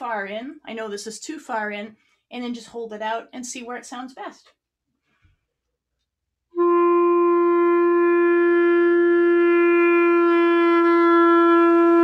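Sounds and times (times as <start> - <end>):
clarinet long note: 6.5 - 12.0.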